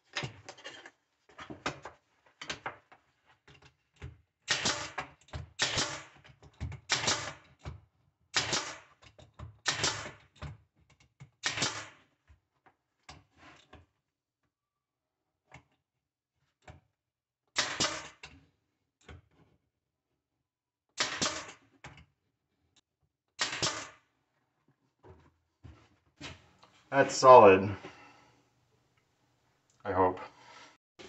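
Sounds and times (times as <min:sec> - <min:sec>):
brad nailer firing into wood: 0:04.5 - 0:06.2, 0:06.9 - 0:07.5, 0:08.3 - 0:09.0, 0:09.6 - 0:10.2, 0:11.4 - 0:12.0, 0:17.6 - 0:18.2, 0:21.0 - 0:21.6, 0:23.4 - 0:24.0.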